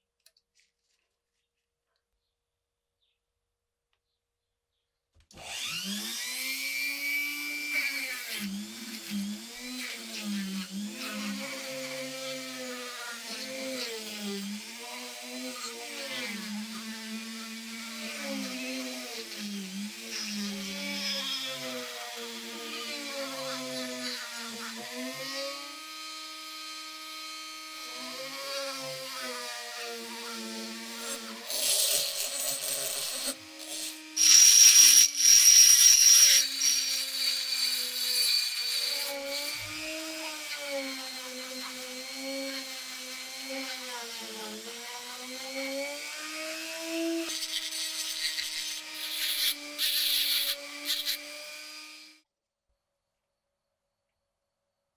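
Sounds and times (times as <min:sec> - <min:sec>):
rotary tool whining: 0:05.4 - 0:25.6, 0:27.8 - 0:52.2
gritty grinding on metal: 0:30.9 - 0:41.8, 0:47.2 - 0:51.6.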